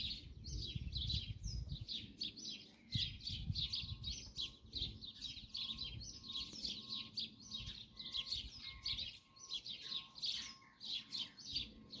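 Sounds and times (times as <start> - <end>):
wind rumble on microphone: 0.0 - 9.5
songbirds chirping and trilling: 0.0 - 12.0.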